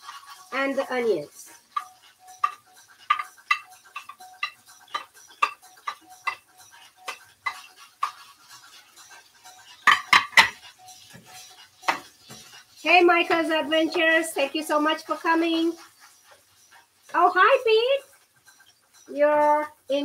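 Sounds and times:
metal utensil clinking on plate: 0:01.7 - 0:12.6.

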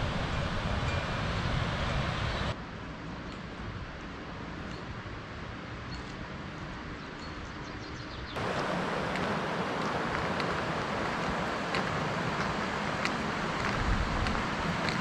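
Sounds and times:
wind buffeting microphone: 0:00.0 - 0:02.6, 0:08.4 - 0:15.0
mountain river rushing: 0:08.4 - 0:15.0.

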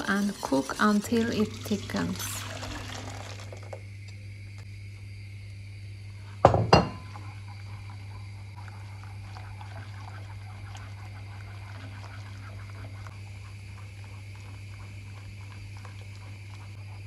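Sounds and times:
whisk stirring mixture: 0:00.0 - 0:03.6, 0:07.0 - 0:17.0
kitchenware clinking on saucepan: 0:06.5 - 0:07.0.

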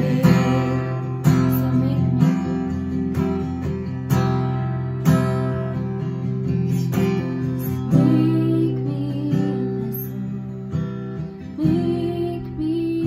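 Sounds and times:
woman singing: 0:00.0 - 0:03.0, 0:06.7 - 0:10.6, 0:11.4 - 0:13.0
strummed acoustic guitar: 0:00.0 - 0:13.0.

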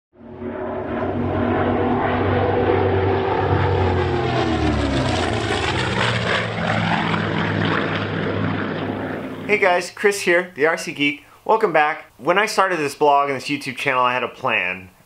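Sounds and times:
propeller aircraft flying past: 0:00.2 - 0:10.0.

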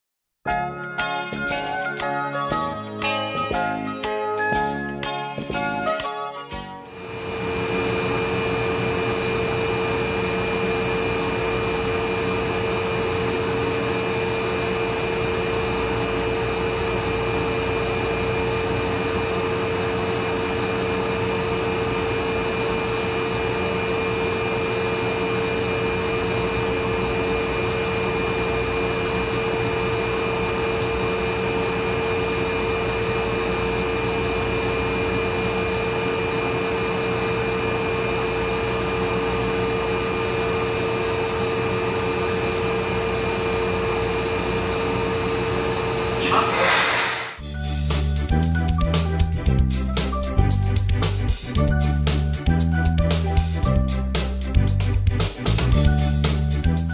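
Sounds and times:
train motor-generator whine: 0:06.9 - 0:48.8.

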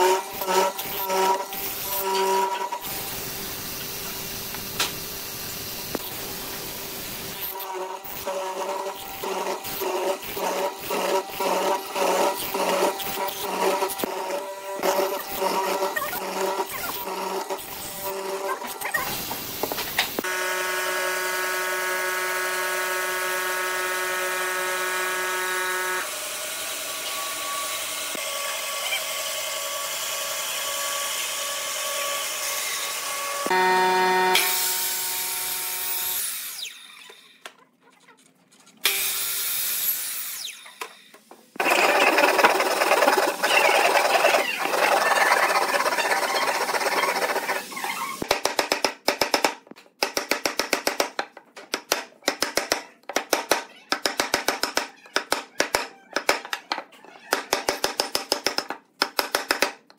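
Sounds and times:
bandsaw cutting wood: 0:00.0 - 0:05.1, 0:07.3 - 0:37.2, 0:41.6 - 0:48.3
miter saw cutting boards: 0:00.0 - 0:37.4, 0:38.8 - 0:48.3.

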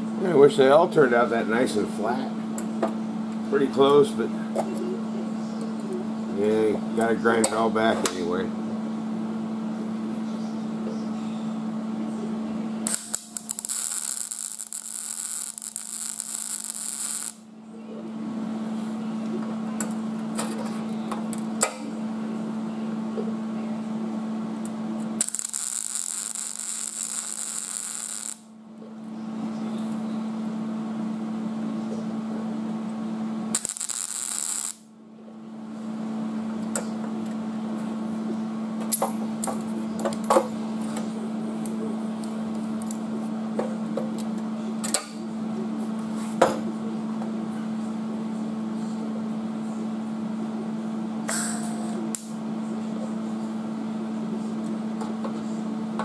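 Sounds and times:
steady hum: 0:00.0 - 0:56.0
welding arc crackling: 0:12.8 - 0:17.5, 0:25.0 - 0:28.5, 0:33.5 - 0:34.9.

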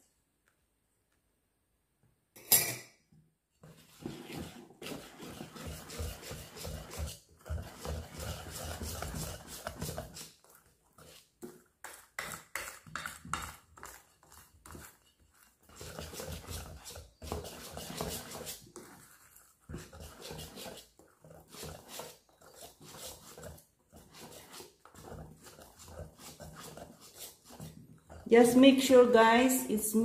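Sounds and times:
whisk beating batter in metal bowl: 0:03.6 - 0:29.6.

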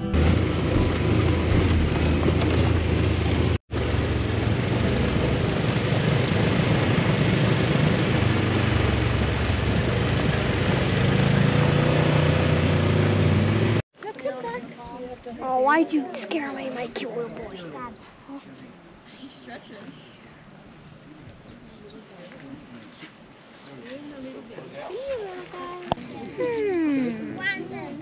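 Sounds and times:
tyres on rough gravel: 0:00.0 - 0:12.1
utility vehicle engine running: 0:00.0 - 0:13.8.

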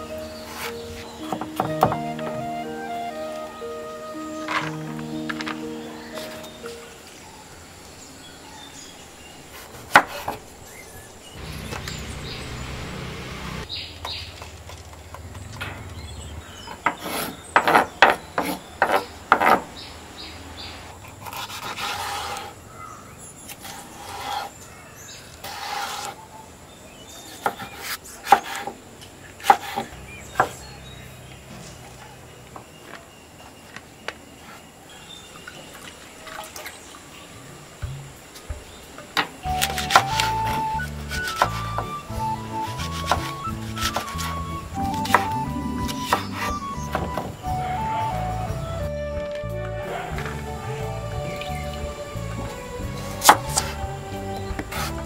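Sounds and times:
vegetables rustling: 0:39.4 - 0:47.1
knife chopping on wooden board: 0:39.6 - 0:42.0, 0:42.6 - 0:45.4, 0:53.2 - 0:53.7.

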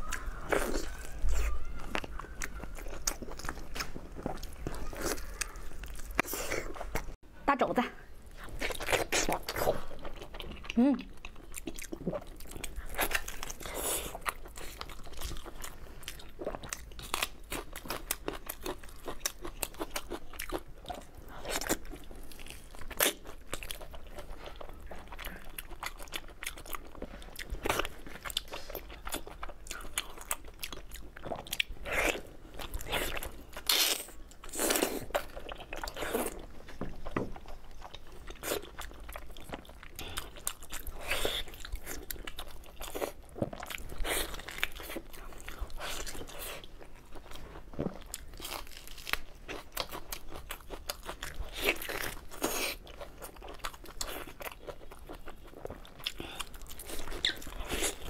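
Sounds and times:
person chewing meat: 0:00.0 - 0:07.2, 0:08.2 - 0:58.0.

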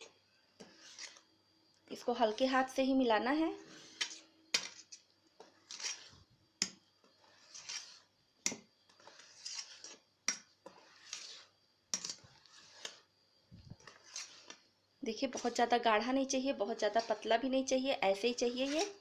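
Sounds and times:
whisk swishing through batter: 0:00.6 - 0:01.3, 0:03.5 - 0:06.3, 0:07.0 - 0:17.7, 0:18.4 - 0:19.0.

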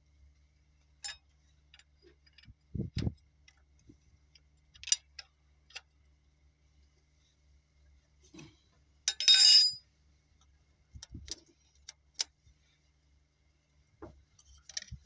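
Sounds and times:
ringing metal jangle: 0:09.1 - 0:09.8.

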